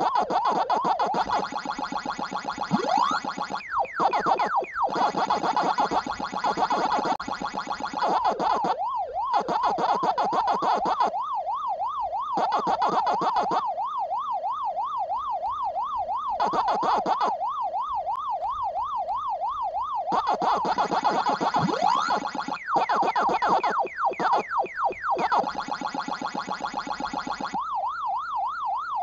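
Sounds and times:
arcade chomping sound: 0.0s - 11.2s, 12.3s - 13.6s, 16.3s - 17.4s, 20.1s - 27.6s
arcade siren tone sweeping: 0.0s - 29.0s.

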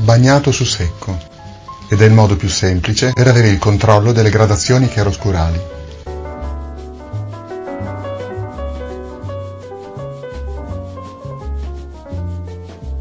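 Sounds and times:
instrumental music with pulsing bass: 5.0s - 13.0s.

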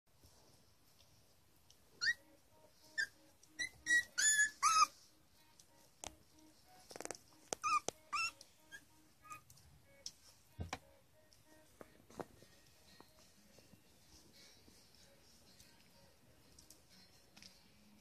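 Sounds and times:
puppies squeaking and whimpering: 2.0s - 5.0s, 7.4s - 9.5s.

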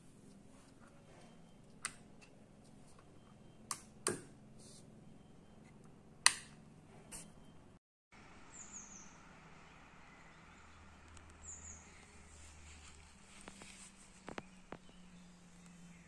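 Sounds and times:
sharp switch clicks: 3.7s - 4.3s, 6.2s - 6.6s.

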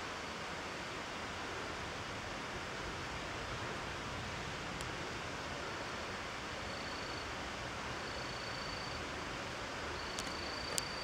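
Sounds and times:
faint high whine: 0.0s - 11.0s
outdoor ambient hiss: 0.0s - 11.0s
light clicks: 10.1s - 11.0s.

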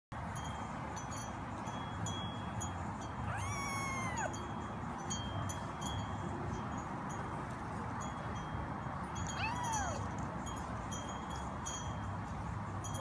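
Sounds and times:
kitten meowing: 3.3s - 4.3s, 9.4s - 10.0s.

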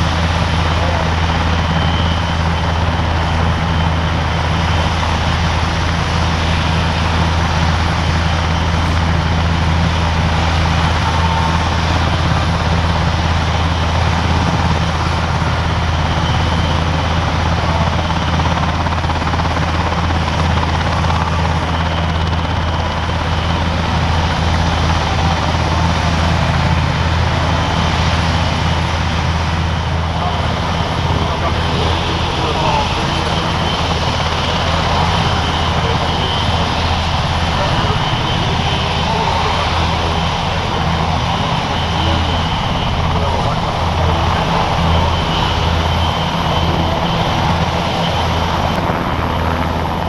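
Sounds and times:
helicopter running: 0.0s - 50.0s.

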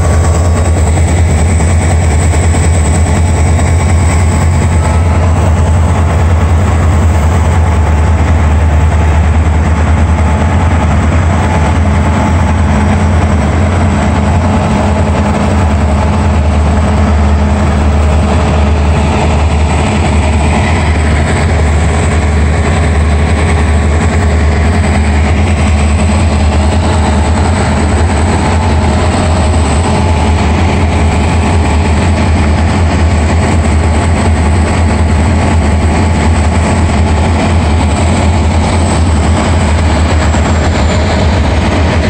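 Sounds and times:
diesel locomotive engine rumble: 0.0s - 42.0s
train wheels rolling on rails: 0.0s - 42.0s.

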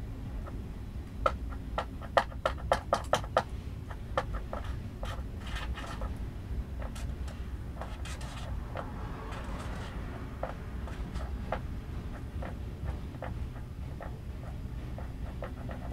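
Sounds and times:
train wheels clicking and knocking: 1.2s - 15.9s
freight train rumbling: 3.3s - 15.9s.

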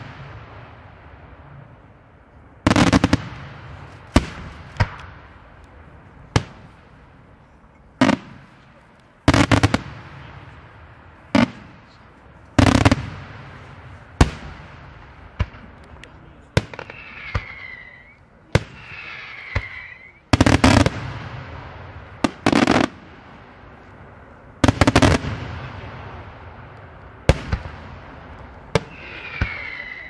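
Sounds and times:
fireworks bursting in loud bangs: 2.7s - 5.2s, 8.0s - 8.5s, 9.2s - 10.7s, 16.5s - 23.3s, 24.6s - 26.4s, 27.2s - 30.0s.

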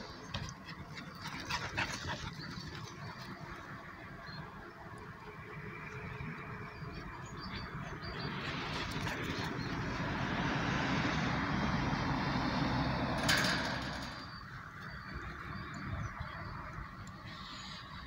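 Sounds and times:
vehicle passing by: 5.2s - 17.9s.

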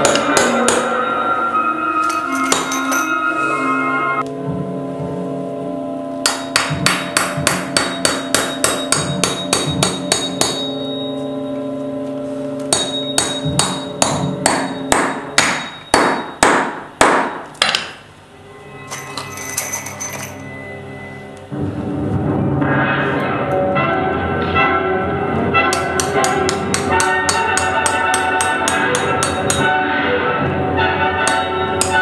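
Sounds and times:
hammer striking nails into wood: 0.0s - 0.9s, 6.3s - 10.6s, 12.7s - 18.0s, 25.8s - 29.7s.

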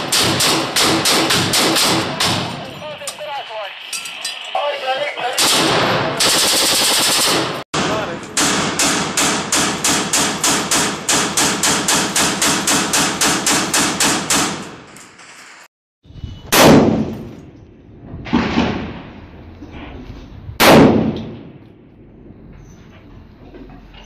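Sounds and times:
rapid rifle fire: 0.0s - 2.5s, 5.4s - 14.6s.

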